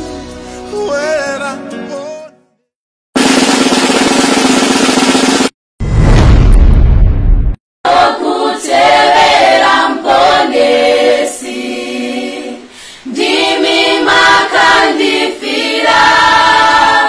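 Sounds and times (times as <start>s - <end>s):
deep boom: 5.8s - 7.6s
choir singing a cappella: 7.9s - 17.0s.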